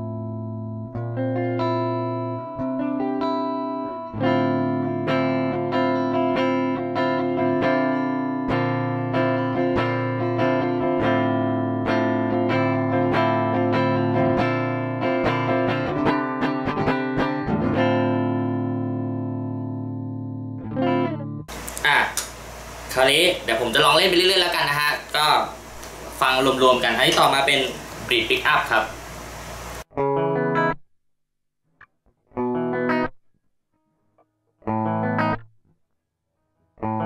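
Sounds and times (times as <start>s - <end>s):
clean electric guitar chords and arpeggios: 0.0s - 21.6s, 29.9s - 30.8s, 32.3s - 33.2s, 34.6s - 35.5s, 36.8s - 37.0s.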